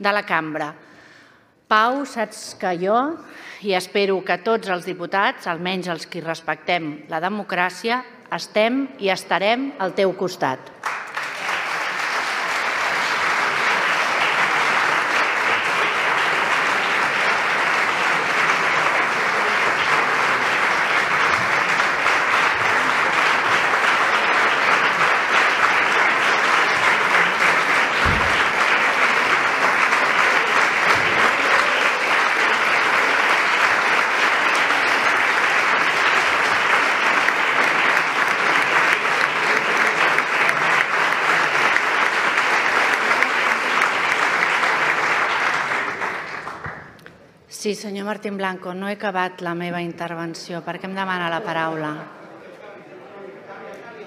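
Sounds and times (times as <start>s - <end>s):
crowd applauding: 10.8s - 47.2s
dull low bump: 28.0s - 28.6s.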